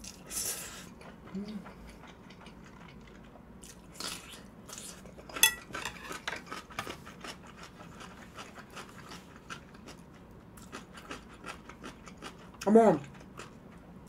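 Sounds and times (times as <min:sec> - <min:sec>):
utensils clinking on a dish: 0:05.4 - 0:06.4.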